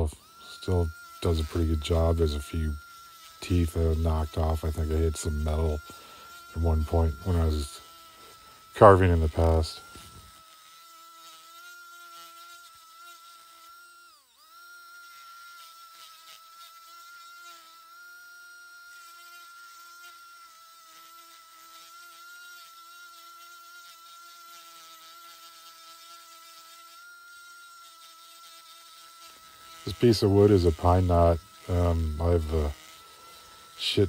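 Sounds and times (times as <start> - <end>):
rotary tool whining: 0.0 - 24.6.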